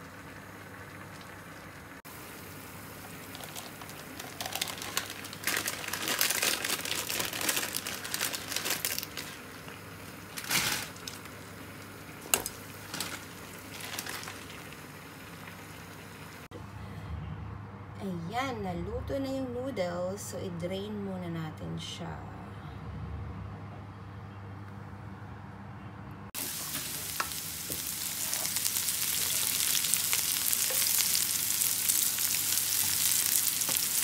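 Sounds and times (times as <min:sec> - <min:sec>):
plastic packet crinkling: 0:03.2 - 0:09.5, 0:10.3 - 0:11.4, 0:12.8 - 0:14.7.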